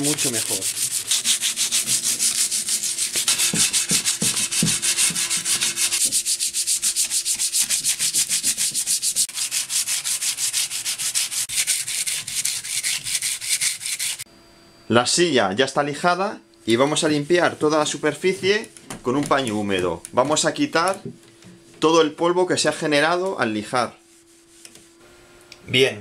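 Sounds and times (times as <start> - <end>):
sandpaper scratching on wood: 0.0 - 14.2, 24.0 - 24.9.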